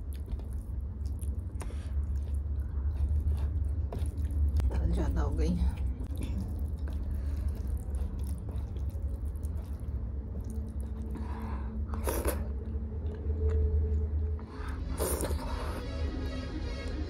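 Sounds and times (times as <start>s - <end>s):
fingers mixing wet rice: 0.0s - 4.7s, 6.2s - 11.1s
person chewing: 0.0s - 4.7s, 6.0s - 15.8s
steady low hum: 0.0s - 17.0s.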